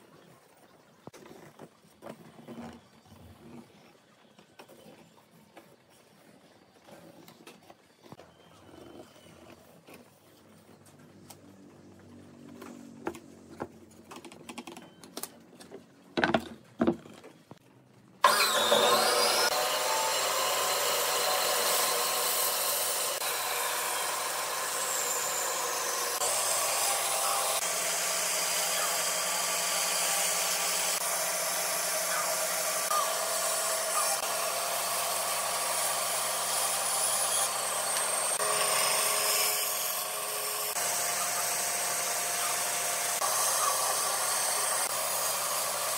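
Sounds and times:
bandsaw cutting wood: 18.2 - 45.9.

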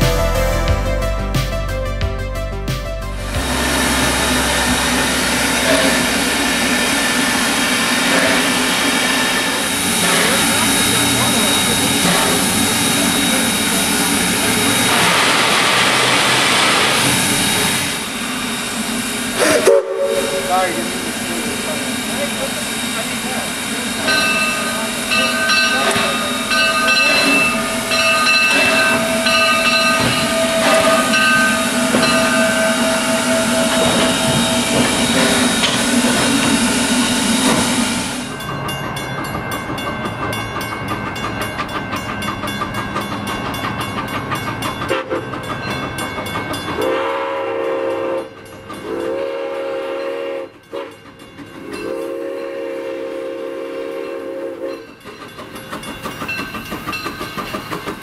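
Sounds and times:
approaching steam train: 0.0 - 58.0
steam locomotive hissing: 3.2 - 58.0
steam train whistle blasts: 3.4 - 7.2, 19.4 - 20.9, 44.9 - 45.2, 46.8 - 51.0, 51.7 - 54.9.

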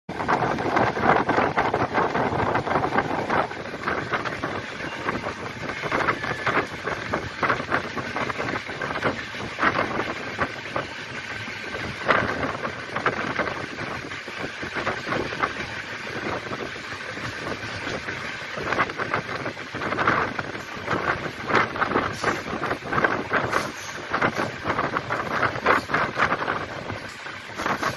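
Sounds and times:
train wheels rolling on track: 0.1 - 27.9
wind rushing on microphone: 0.1 - 27.9.

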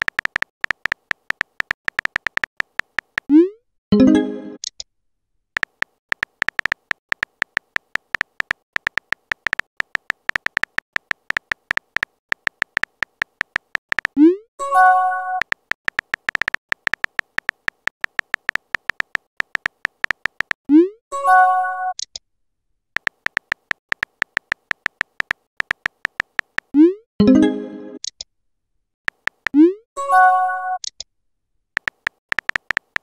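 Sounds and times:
keyboard typing clicks: 0.0 - 3.4, 5.6 - 20.6, 23.0 - 26.9, 29.1 - 29.7, 31.8 - 33.0.

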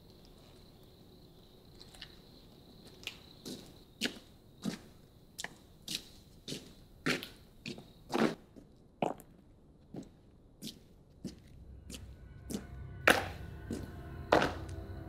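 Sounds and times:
crickets chirring: 0.0 - 8.4.

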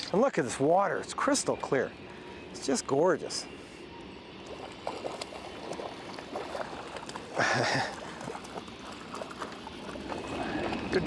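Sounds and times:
fish splashing in water: 4.5 - 10.8.

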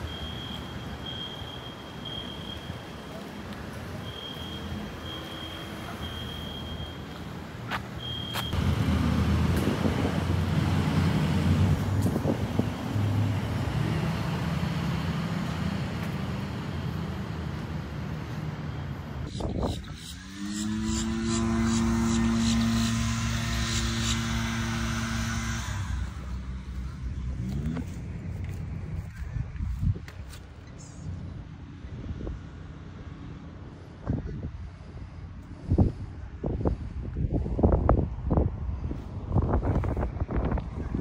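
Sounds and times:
engine hum: 0.0 - 41.0
vehicle rumble: 0.0 - 41.0
engine note rising in pitch: 19.9 - 28.0.

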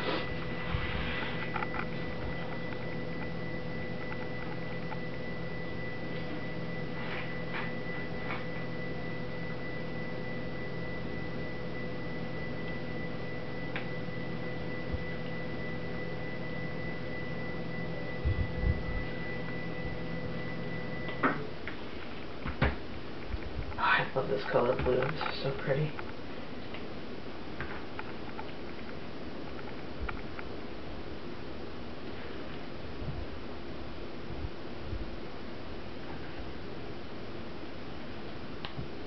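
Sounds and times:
thin high steady tones: 0.0 - 22.0
electrical room hum: 0.0 - 39.0
dull low thumps: 18.2 - 19.1.

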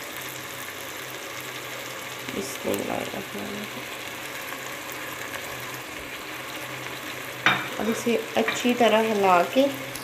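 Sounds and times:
food sizzling in oil: 0.0 - 10.0.

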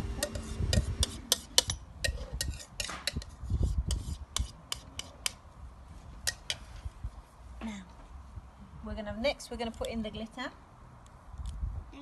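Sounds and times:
spoon scraping plastic bowl: 0.0 - 5.1.

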